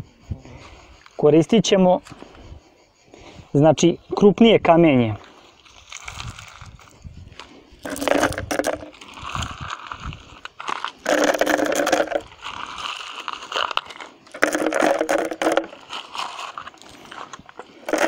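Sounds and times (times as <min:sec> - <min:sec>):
stones rustling: 0:05.6 - 0:18.0
stones rattling in plastic bottle: 0:05.8 - 0:06.9, 0:07.8 - 0:18.0.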